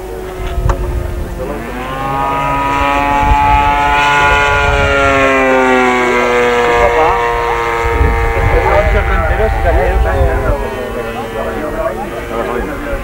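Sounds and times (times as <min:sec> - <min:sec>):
model airplane engine fly-by: 0:00.0 - 0:13.0.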